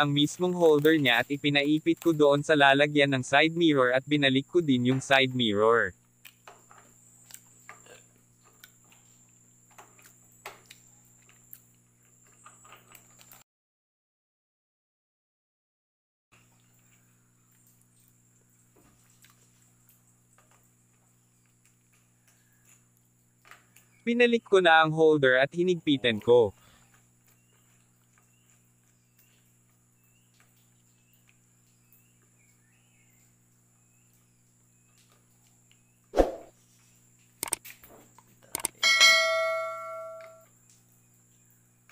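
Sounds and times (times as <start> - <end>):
faint clicks: 37.3 - 37.8, 38.4 - 38.8.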